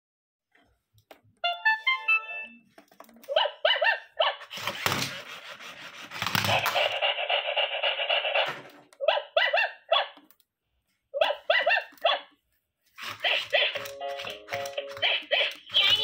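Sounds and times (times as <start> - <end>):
bright steady electronic tune: 1.5 - 2.7
electronic barks: 6.4 - 10.3, 11.2 - 12.3.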